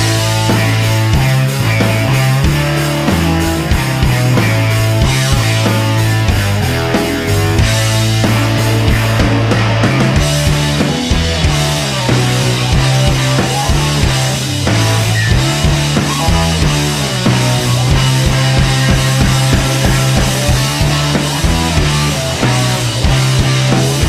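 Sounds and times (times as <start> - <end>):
rock music with drums and guitar: 0.0 - 24.0.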